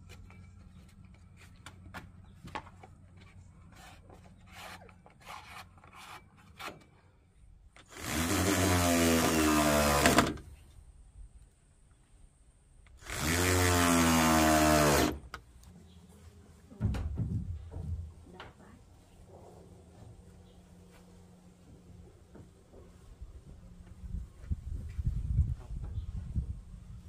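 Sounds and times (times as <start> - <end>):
power tool cutting wood: 7.8 - 10.4, 13.0 - 15.3.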